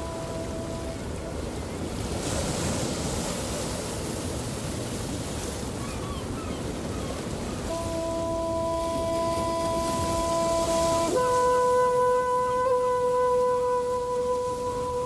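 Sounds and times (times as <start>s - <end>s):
held music chord: 0.0s - 1.5s, 7.7s - 15.0s
ocean waves washing in: 0.0s - 15.0s.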